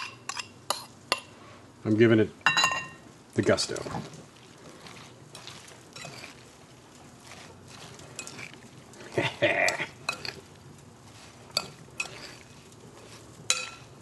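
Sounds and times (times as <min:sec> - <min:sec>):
soft wet stirring: 0:03.2 - 0:14.0
spoon clinking against bowl: 0:10.0 - 0:10.4, 0:13.5 - 0:13.9.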